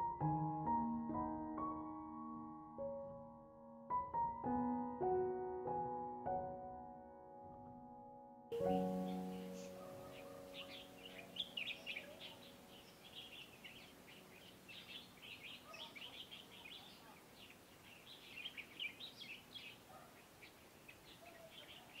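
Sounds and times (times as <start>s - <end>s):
piano chord: 0.0s - 16.5s
small songbirds chirping: 8.5s - 22.0s.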